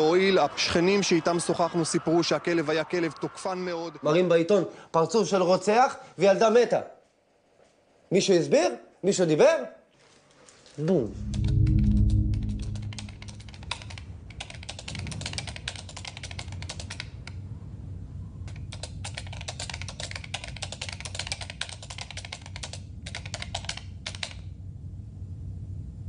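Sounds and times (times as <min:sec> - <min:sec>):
low steady hum: 0:11.0 - 0:14.3
keyboard typing: 0:12.5 - 0:17.0, 0:18.7 - 0:24.3.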